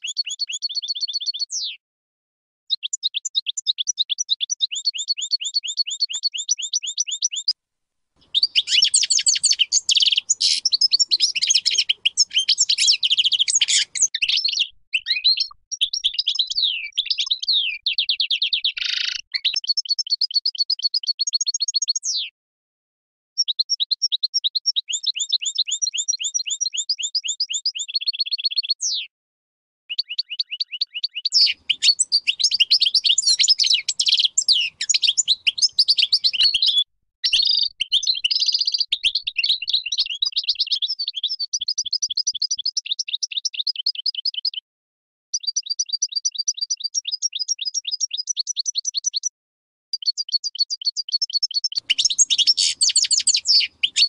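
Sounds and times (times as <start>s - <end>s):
goldfinch singing: 0.0s - 1.8s, 2.7s - 7.5s, 8.2s - 22.3s, 23.4s - 29.1s, 29.9s - 44.6s, 45.4s - 49.3s, 50.0s - 54.0s.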